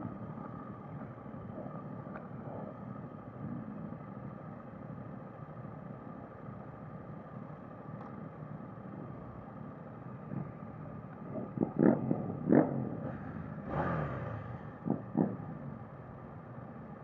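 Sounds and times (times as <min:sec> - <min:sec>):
motorcycle engines idling: 0:00.0 - 0:17.0.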